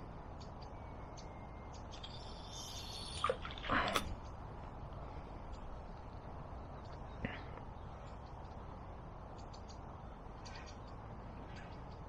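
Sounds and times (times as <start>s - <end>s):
faint high bird chirps: 0.4s - 4.0s.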